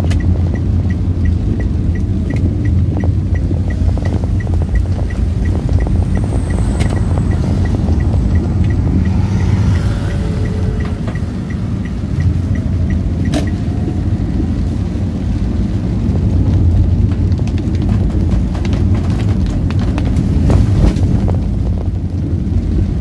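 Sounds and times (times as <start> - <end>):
fast light ticking: 0.0 - 14.0
car driving on wet road: 0.0 - 23.0.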